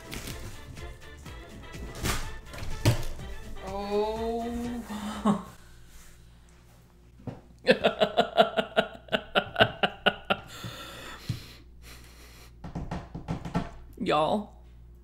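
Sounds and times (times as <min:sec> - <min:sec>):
woman laughing: 0:04.6 - 0:05.6, 0:07.6 - 0:10.5
breathy intake of breath: 0:10.5 - 0:12.6.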